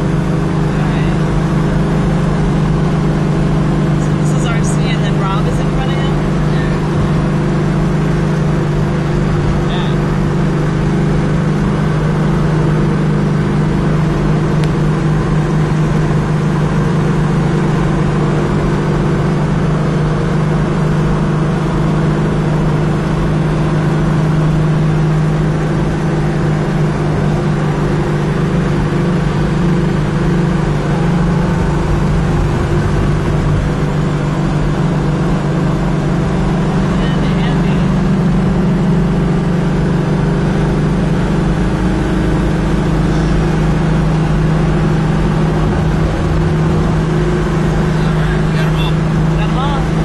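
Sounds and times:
car engine drone: 0.0 - 50.0.

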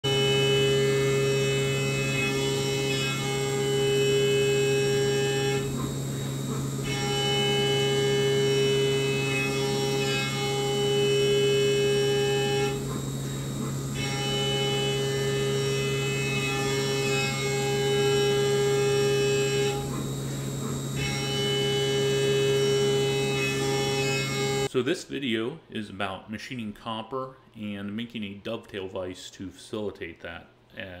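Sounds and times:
milling machine hum: 0.0 - 24.7
high cutting whine: 0.0 - 24.8.

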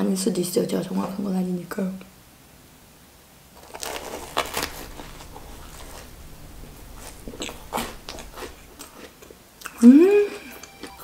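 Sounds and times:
crackly chewing: 3.5 - 11.0
crisp biting crunches: 3.6 - 11.0.

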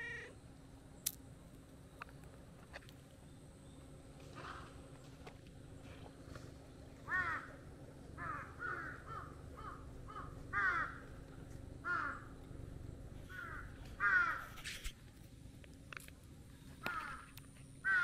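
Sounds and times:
crow cawing: 7.1 - 7.6, 8.2 - 11.1, 11.8 - 12.3, 13.3 - 14.6, 16.8 - 18.0.

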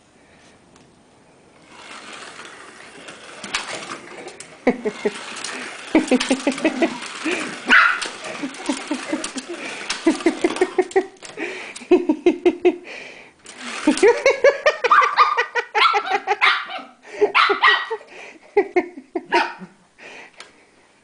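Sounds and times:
child laughing: 4.6 - 12.8, 13.6 - 19.7
small dog barking: 7.7 - 8.0, 14.9 - 18.0, 19.3 - 19.6.

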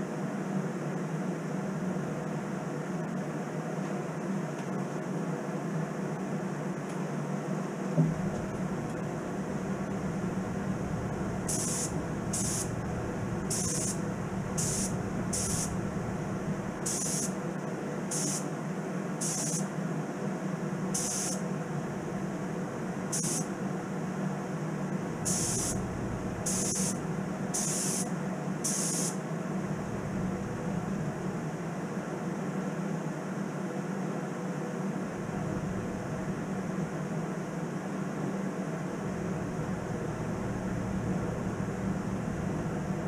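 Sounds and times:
steady low hum: 0.0 - 43.0
spray gun hissing bursts: 10.2 - 16.0, 16.7 - 17.4, 18.1 - 18.5, 19.2 - 19.6, 21.0 - 21.4, 23.1 - 23.5, 25.2 - 29.2.

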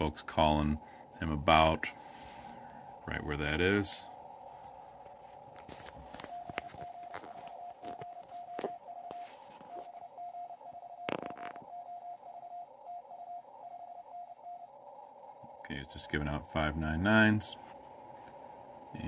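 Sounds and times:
radio crackles: 0.0 - 12.3
receiver hiss: 0.0 - 19.0
morse code tone: 5.8 - 14.7.

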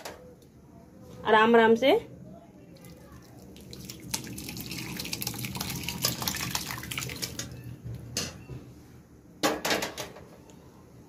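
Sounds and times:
liquid splashing and trickling: 2.7 - 7.6.

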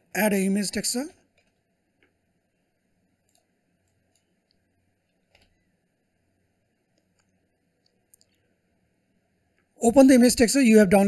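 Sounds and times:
faint room hum: 0.0 - 11.0
computer mouse clicks: 1.3 - 2.2, 3.2 - 5.6.

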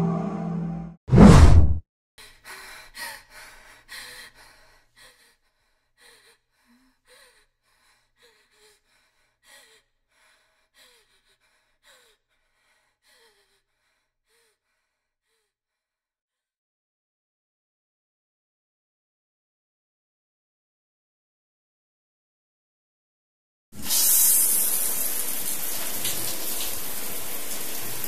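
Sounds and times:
woman gasping breaths: 2.2 - 15.6.

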